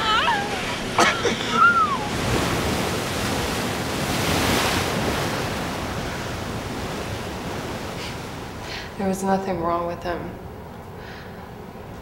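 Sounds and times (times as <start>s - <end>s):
ocean surf breaking on shore: 0.0s - 9.2s.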